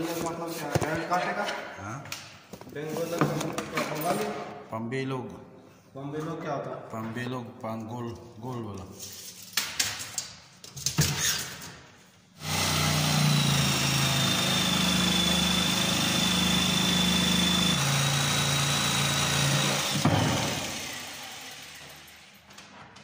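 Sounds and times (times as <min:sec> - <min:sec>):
jigsaw cutting wood: 0:12.4 - 0:22.3.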